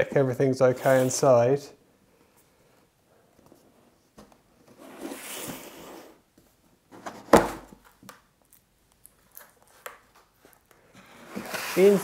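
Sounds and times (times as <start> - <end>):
cardboard rustling and scraping: 10.4 - 12.0.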